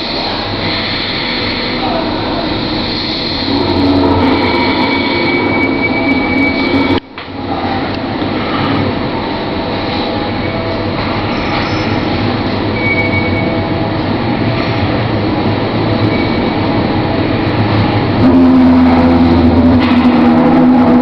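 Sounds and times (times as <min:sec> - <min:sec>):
railway carriage rumbling on rails: 0:00.0 - 0:21.0
faint high squeal: 0:03.5 - 0:07.0, 0:11.3 - 0:13.7, 0:16.0 - 0:16.7.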